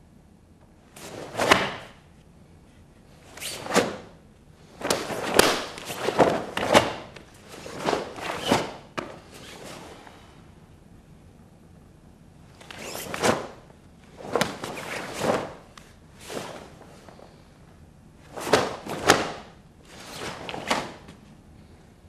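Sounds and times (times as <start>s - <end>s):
cloth swishing: 0.9s - 1.9s, 3.2s - 10.0s, 12.6s - 17.0s, 18.3s - 21.1s
sharp cloth crack: 1.0s - 2.0s, 4.8s - 9.6s, 14.2s - 15.6s, 18.4s - 21.0s.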